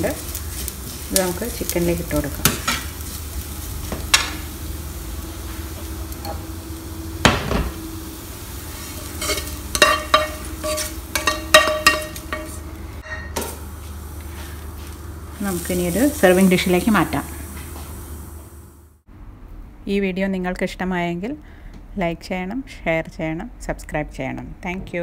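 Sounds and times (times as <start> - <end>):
faint sizzle: 0.0 - 22.6
wooden spatula scraping a pan: 8.8 - 13.3.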